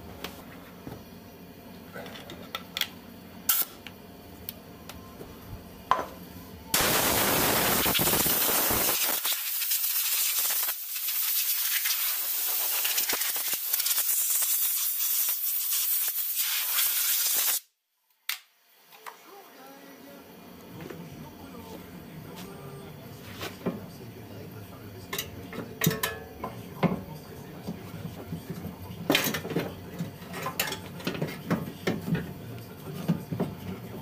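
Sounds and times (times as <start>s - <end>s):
loud steady hiss: 6.8s - 17.7s.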